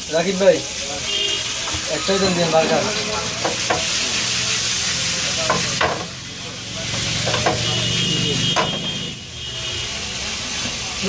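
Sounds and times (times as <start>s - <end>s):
pasta sizzling in a frying pan: 0.0s - 11.0s
spatula scraping and knocking pan: 3.2s - 4.2s, 5.4s - 6.2s, 6.9s - 7.9s, 8.5s - 9.0s.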